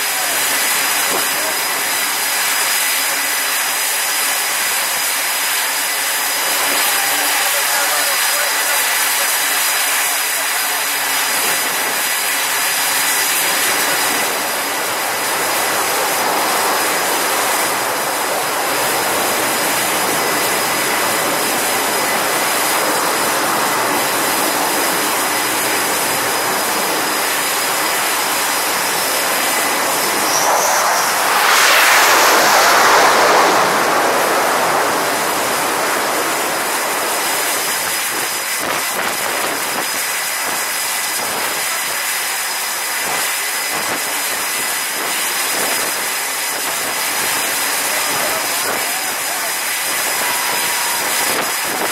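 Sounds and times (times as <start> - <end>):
jet engine rushing: 0.0 - 40.3.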